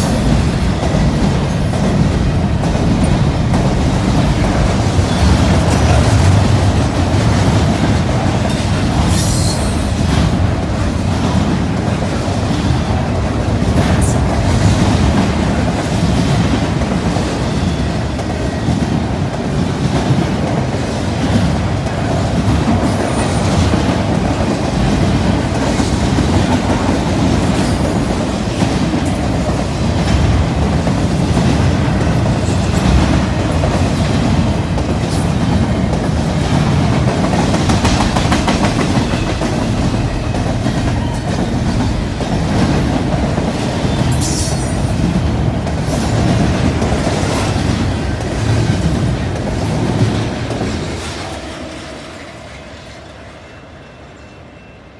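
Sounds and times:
train wheels rumbling and clattering: 0:00.0 - 0:53.6.

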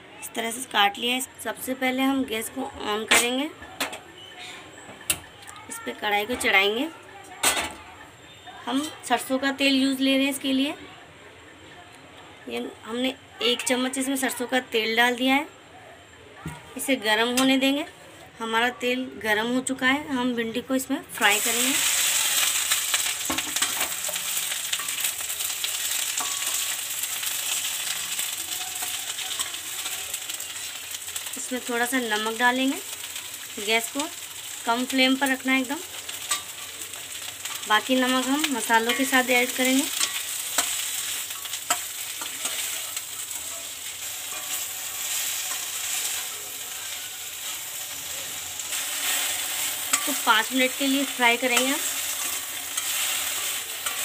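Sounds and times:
okra sizzling in hot oil: 0:19.4 - 0:54.0
spatula stirring in pan: 0:21.8 - 0:31.4, 0:35.8 - 0:54.0
spoon clinking against pan: 0:22.5 - 0:27.9, 0:36.2 - 0:36.8, 0:39.9 - 0:45.9, 0:49.5 - 0:50.3.

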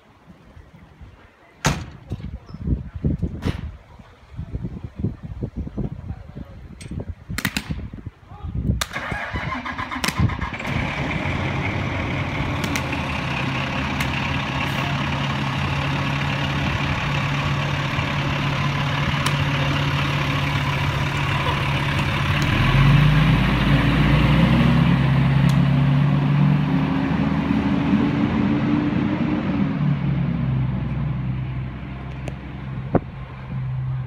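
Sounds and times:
diesel engine revving: 0:09.0 - 0:34.0.

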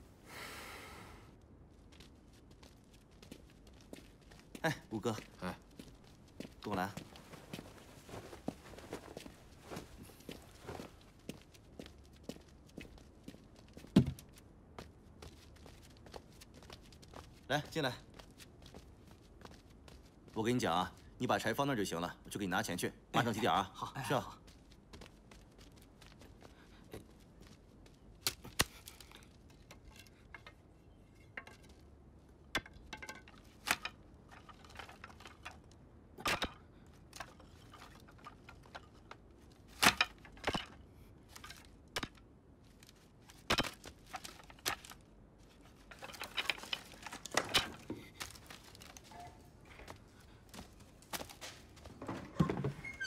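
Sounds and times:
rustling: 0:01.6 - 0:20.3, 0:42.6 - 0:53.0
wood knocking and clattering: 0:13.8 - 0:14.2, 0:32.5 - 0:35.6, 0:43.4 - 0:45.0, 0:45.7 - 0:50.0, 0:50.6 - 0:53.0.

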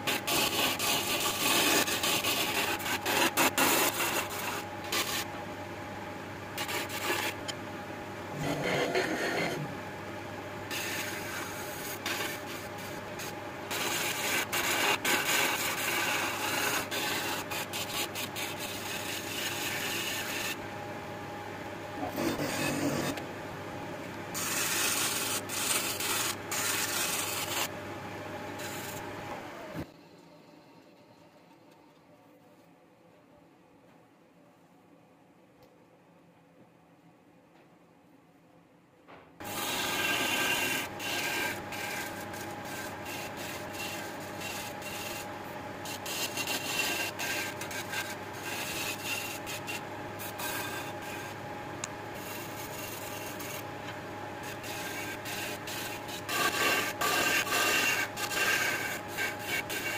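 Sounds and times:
chisel scraping spinning wood: 0:00.0 - 0:05.3, 0:06.6 - 0:07.6, 0:08.3 - 0:09.8, 0:10.7 - 0:20.6, 0:22.0 - 0:23.2, 0:24.4 - 0:27.7, 0:39.4 - 0:51.4, 0:52.1 - 0:59.9
wood lathe motor hum: 0:08.3 - 0:09.8, 0:22.0 - 0:23.3, 0:39.4 - 0:59.9.

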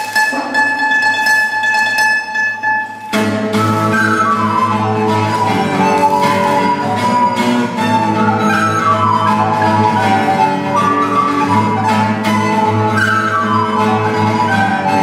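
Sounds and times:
classical guitar accompaniment: 0:00.0 - 0:15.0
wooden flute melody: 0:00.0 - 0:15.0.

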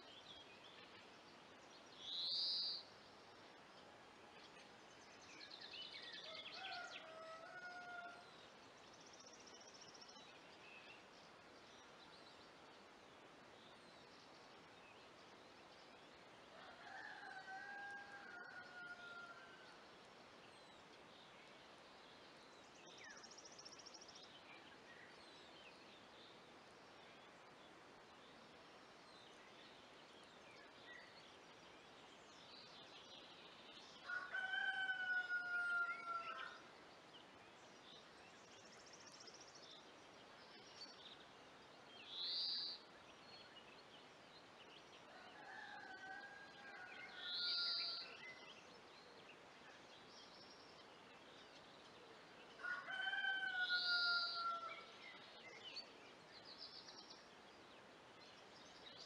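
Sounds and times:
faint outdoor background noise: 0:00.0 - 0:59.0
rooster crowing: 0:06.6 - 0:08.3, 0:16.6 - 0:19.6, 0:34.0 - 0:36.6, 0:52.6 - 0:54.8.

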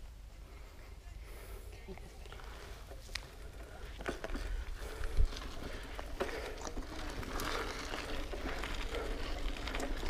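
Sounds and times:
bike tyre noise on dirt: 0:02.1 - 0:10.0
bike clicks and rattles: 0:02.2 - 0:10.0.

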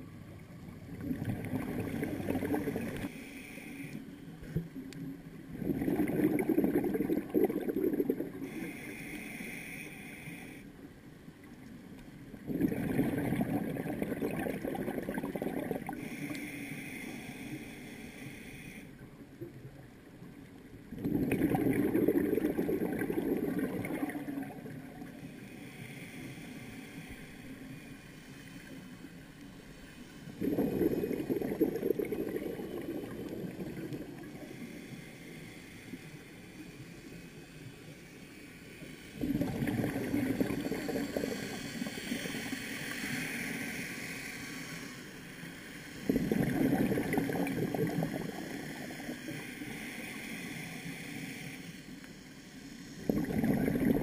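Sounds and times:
exhaled bubbles gurgling: 0:00.7 - 0:03.1, 0:05.5 - 0:08.9, 0:12.3 - 0:16.2, 0:20.9 - 0:25.7, 0:30.2 - 0:34.7, 0:39.2 - 0:43.2, 0:46.0 - 0:49.4, 0:53.0 - 0:54.0
regulator inhalation hiss: 0:03.0 - 0:04.1, 0:08.4 - 0:10.8, 0:15.8 - 0:19.0, 0:23.3 - 0:30.4, 0:32.7 - 0:39.3, 0:40.4 - 0:46.4, 0:47.4 - 0:53.2.

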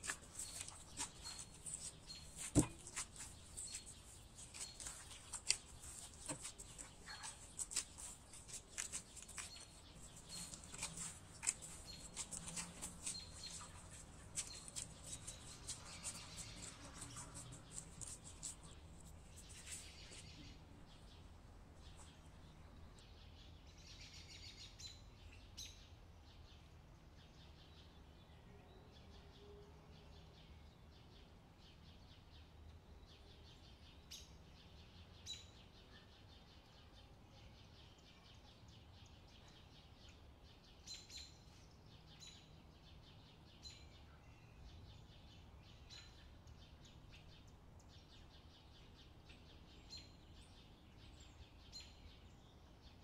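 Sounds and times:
dough kneading squelches: 0:00.0 - 0:22.4.

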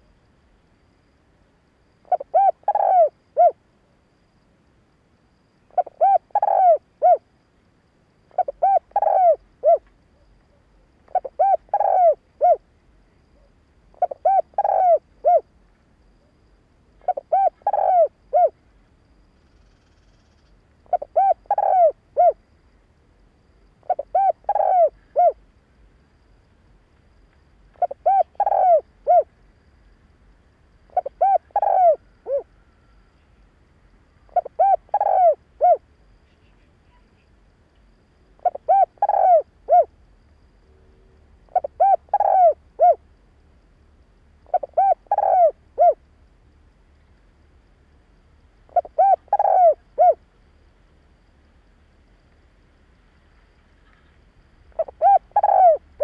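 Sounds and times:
dove cooing: 0:02.1 - 0:03.6, 0:05.7 - 0:07.2, 0:08.3 - 0:09.9, 0:11.1 - 0:12.6, 0:13.4 - 0:15.4, 0:17.0 - 0:18.6, 0:20.9 - 0:22.4, 0:23.8 - 0:25.4, 0:27.8 - 0:29.3, 0:30.9 - 0:32.5, 0:34.3 - 0:35.8, 0:38.4 - 0:39.9, 0:41.5 - 0:43.0, 0:44.5 - 0:46.0, 0:48.7 - 0:50.2, 0:54.7 - 0:56.0.

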